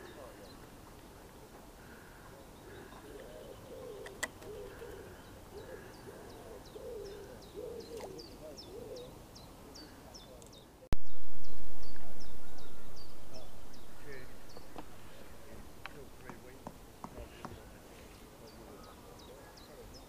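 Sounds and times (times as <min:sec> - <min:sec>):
pigeons cooing: 0:01.8 - 0:09.2.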